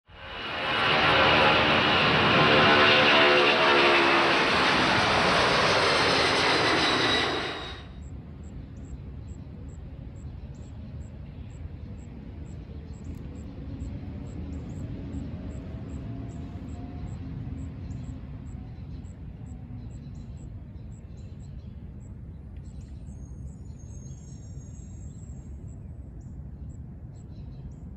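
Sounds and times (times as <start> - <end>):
jet engines at takeoff power: 0.1 - 21.0.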